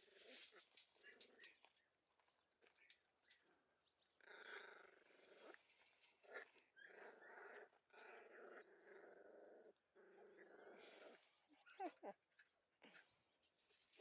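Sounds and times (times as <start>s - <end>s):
puppies growling: 4.2s - 11.9s.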